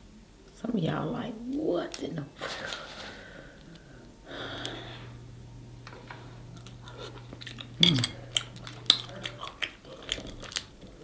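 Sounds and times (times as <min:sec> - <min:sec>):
low hum: 0:03.0 - 0:11.0
chewing and smacking: 0:05.8 - 0:11.0.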